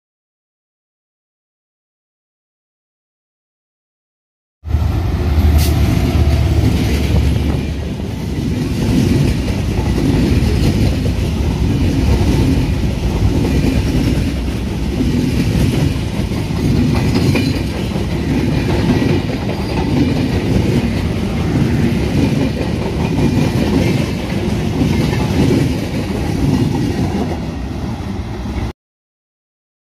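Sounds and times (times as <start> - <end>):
locomotive rumble: 4.7 - 28.7
train wheels clattering: 5.4 - 27.5.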